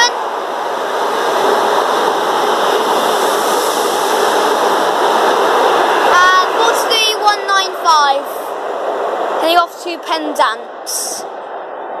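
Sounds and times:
train wheels rushing on rail: 0.0s - 11.4s.

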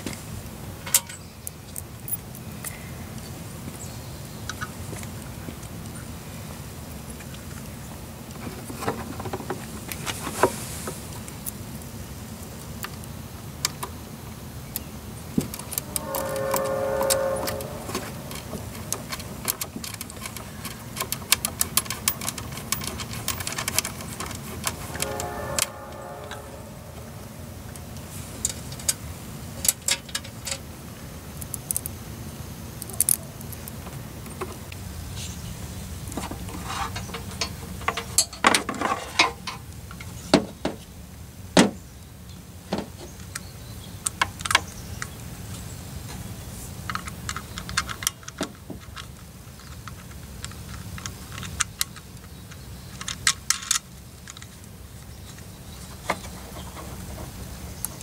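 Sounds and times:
steady low hum: 14.9s - 19.6s, 24.2s - 29.3s.

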